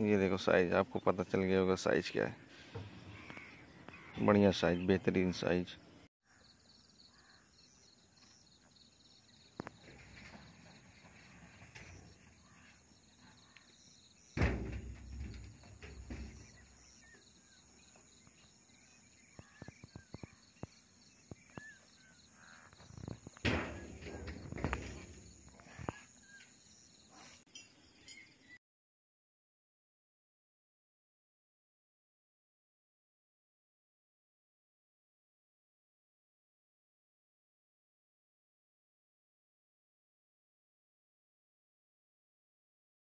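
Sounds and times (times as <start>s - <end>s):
faint bird chirps: 2.4s - 14.4s, 15.8s - 23.4s, 25.4s - 28.6s.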